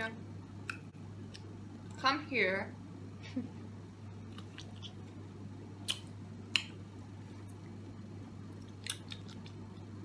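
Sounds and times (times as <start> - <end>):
steady low hum: 0.0 - 10.0
kissing and lip smacking: 5.8 - 6.8.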